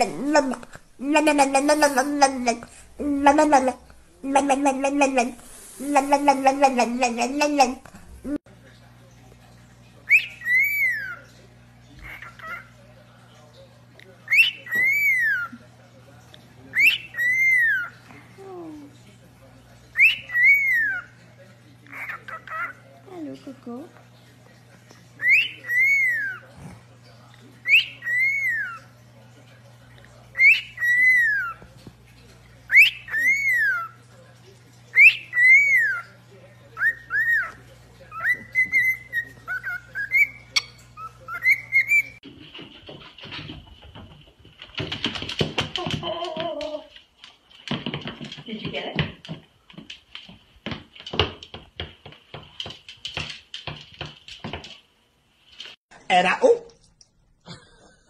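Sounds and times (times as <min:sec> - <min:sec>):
cockatiel whistling: 0:10.1 - 0:11.2, 0:14.3 - 0:15.5, 0:25.2 - 0:26.4, 0:27.6 - 0:28.8, 0:30.4 - 0:31.6, 0:32.7 - 0:33.9, 0:34.9 - 0:36.1, 0:36.8 - 0:42.2
claws clicking on tiled floor: 0:42.2 - 0:55.8.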